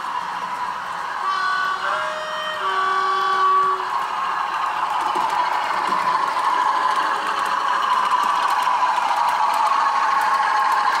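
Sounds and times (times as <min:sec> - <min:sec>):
model train motor whirring: 0:00.0 - 0:11.0
wheels clicking over track: 0:03.1 - 0:11.0.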